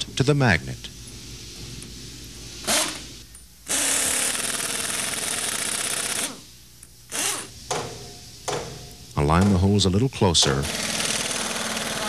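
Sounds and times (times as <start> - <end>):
pneumatic impact wrench: 2.6 - 6.5, 7.1 - 8.0, 10.6 - 12.0.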